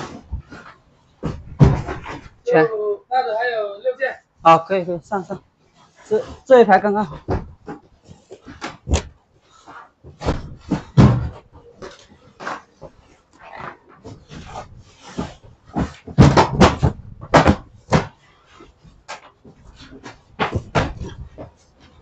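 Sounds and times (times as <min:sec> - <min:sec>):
bales thudding: 0:00.0 - 0:02.4, 0:10.1 - 0:12.6, 0:14.2 - 0:18.2, 0:20.4 - 0:21.5.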